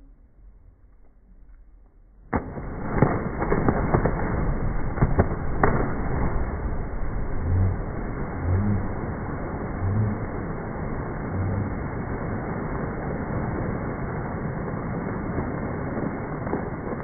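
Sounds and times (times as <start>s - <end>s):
people splashing into water: 2.3s - 14.0s
churning water: 2.4s - 17.0s.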